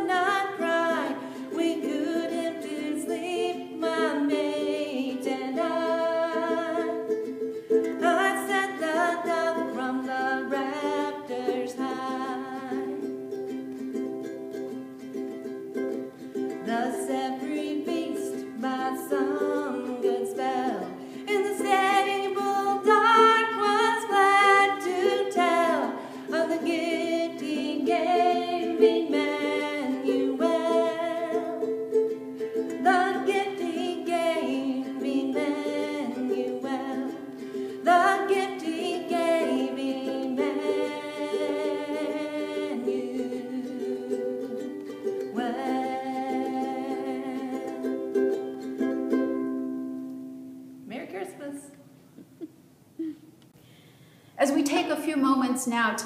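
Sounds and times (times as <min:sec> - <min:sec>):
woman singing: 0:00.0 - 0:13.3, 0:16.5 - 0:31.8, 0:32.5 - 0:48.6
ukulele strumming: 0:00.0 - 0:51.3.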